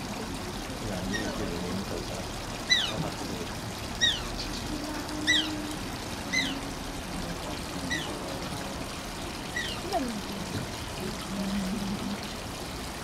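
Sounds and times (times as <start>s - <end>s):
trickle of running water: 0.0s - 13.0s
otter squeaking: 2.6s - 3.1s, 4.0s - 4.6s, 9.5s - 10.1s.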